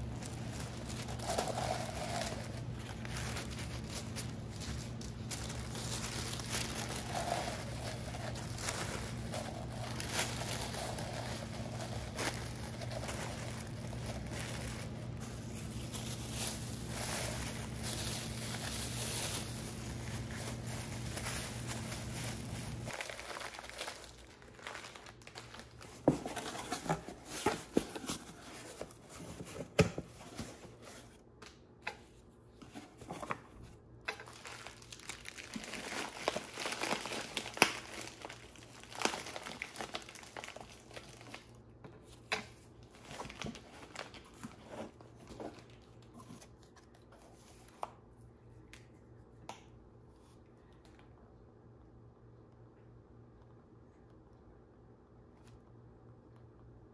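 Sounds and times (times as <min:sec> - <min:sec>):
plastic wrapping crinkling: 0:00.0 - 0:29.5, 0:34.1 - 0:47.6.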